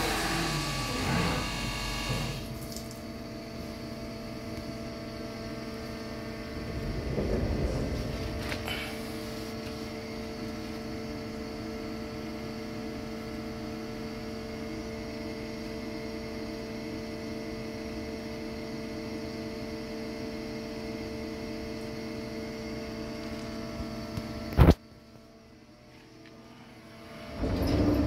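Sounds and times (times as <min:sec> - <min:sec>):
machinery humming: 0:00.0 - 0:14.0, 0:25.5 - 0:28.0.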